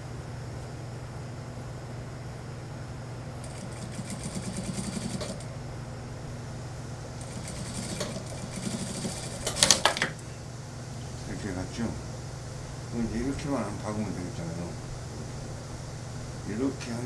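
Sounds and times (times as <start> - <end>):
steady low hum: 0.0 - 17.0
sewing machine stitching: 3.4 - 5.5, 7.2 - 10.1.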